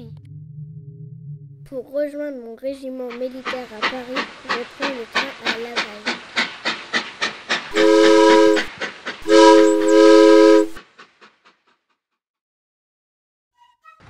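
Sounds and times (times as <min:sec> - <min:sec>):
steam locomotive chuffing: 0:03.0 - 0:11.8
steam whistle blowing: 0:07.7 - 0:10.8.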